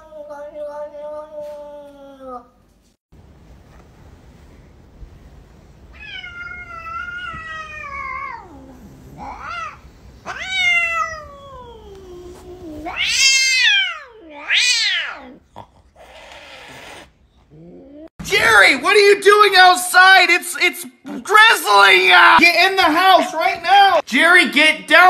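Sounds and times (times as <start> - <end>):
cat meowing: 5.9 - 15.4.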